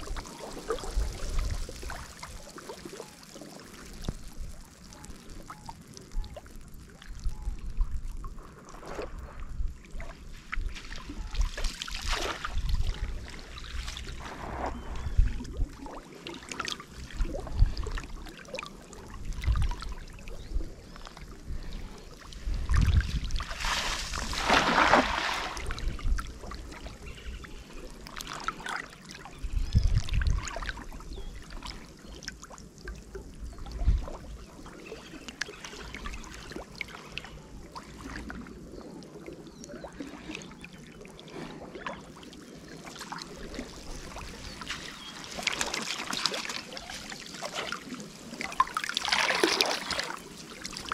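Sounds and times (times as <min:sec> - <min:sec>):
water splashing and trickling: 0:00.0 - 0:50.9
rush of water: 0:08.3 - 0:20.5, 0:21.5 - 0:32.4, 0:39.6 - 0:50.9.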